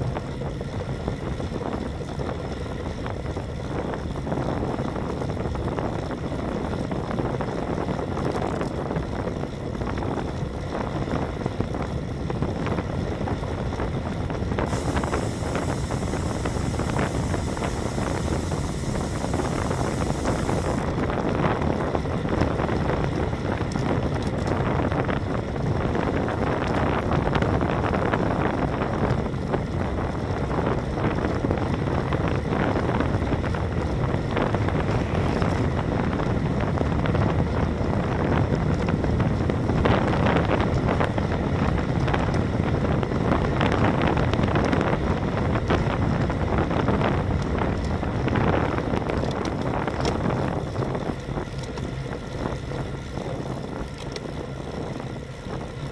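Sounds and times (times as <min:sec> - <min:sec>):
tyre noise on asphalt: 0:00.0 - 0:55.9
wind buffeting microphone: 0:00.0 - 0:55.9
high-pitched hiss: 0:14.7 - 0:20.8.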